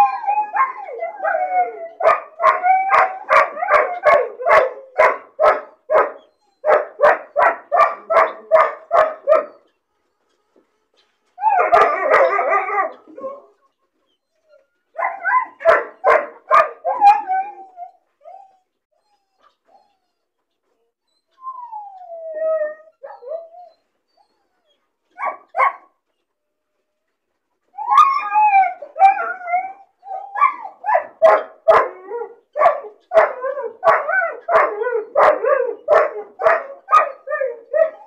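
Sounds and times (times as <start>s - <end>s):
puppy whining: 0.0s - 4.6s, 6.2s - 6.8s, 11.4s - 15.7s, 16.9s - 25.4s, 27.7s - 38.0s
puppy yowling: 0.0s - 5.1s, 14.4s - 19.9s, 27.8s - 38.0s
puppy yapping: 2.0s - 9.6s, 32.6s - 38.0s.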